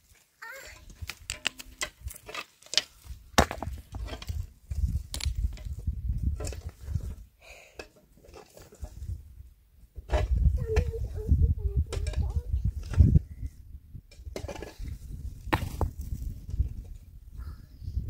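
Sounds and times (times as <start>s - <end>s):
wood knocks and cracks: 1.0s - 4.4s, 15.5s - 16.2s.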